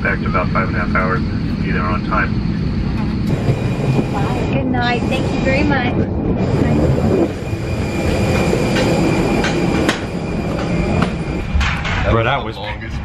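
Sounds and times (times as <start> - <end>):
airliner rumble: 0.0 - 13.0
faint high whine: 0.0 - 13.0.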